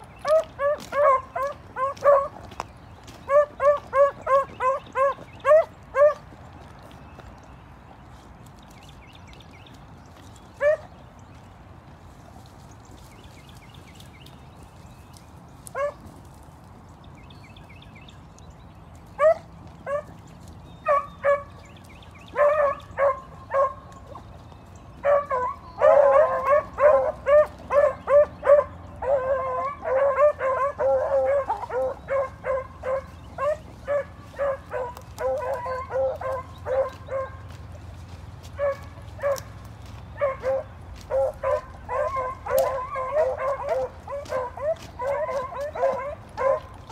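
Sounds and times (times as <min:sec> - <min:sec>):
beagles baying: 0:00.0 - 0:06.4, 0:19.2 - 0:24.4, 0:25.0 - 0:46.9.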